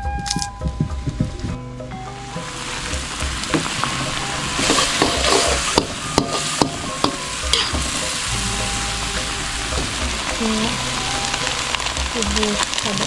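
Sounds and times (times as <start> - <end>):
spice paste sizzling in a wok: 2.1 - 13.0
metal spatula scraping a pan: 3.5 - 12.0.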